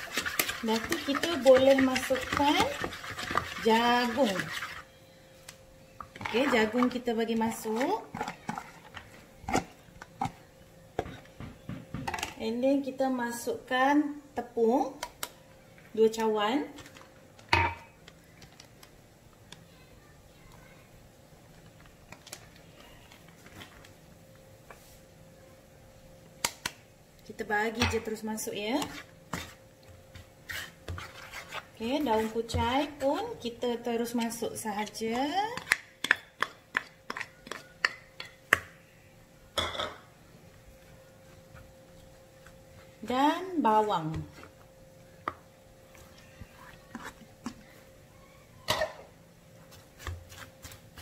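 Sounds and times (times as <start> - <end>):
spoon scraping bowl: 0.0 - 4.9, 28.8 - 29.6, 30.4 - 32.6, 46.4 - 47.3.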